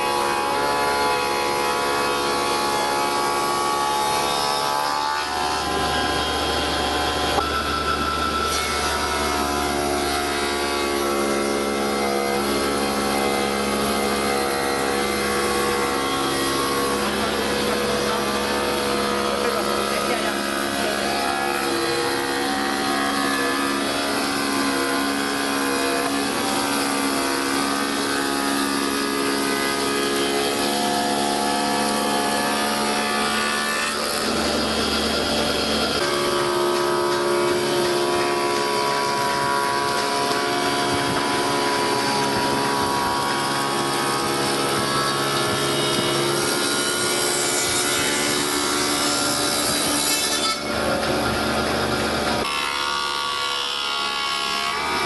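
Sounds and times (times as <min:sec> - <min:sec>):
wood being cut: 0:00.0 - 0:55.0.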